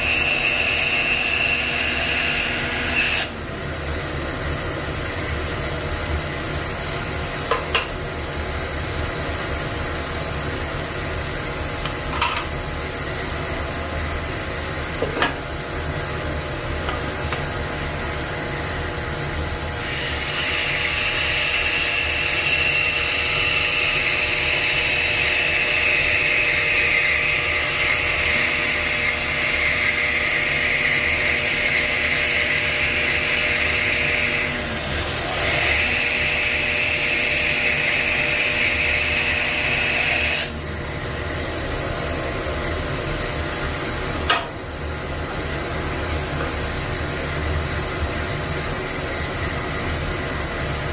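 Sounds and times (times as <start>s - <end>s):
bandsaw motor hum: 0.0s - 4.1s, 10.5s - 46.8s.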